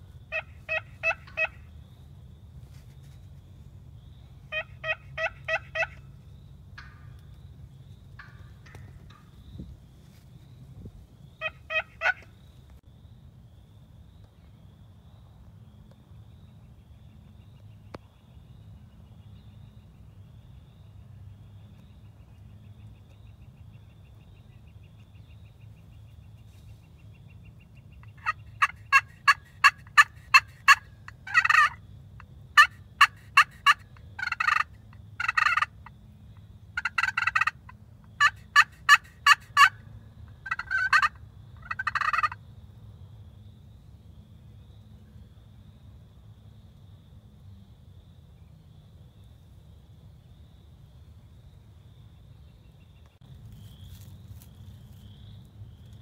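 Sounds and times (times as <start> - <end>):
turkeys calling: 0.0 - 1.7, 4.5 - 6.2, 6.8 - 7.4, 8.1 - 10.2, 11.4 - 12.4, 27.7 - 31.8, 32.6 - 35.9, 36.8 - 42.4
turkey gobbles: 0.3 - 1.6, 11.4 - 12.2, 28.0 - 31.8, 32.6 - 35.7, 36.8 - 39.8, 40.4 - 42.4.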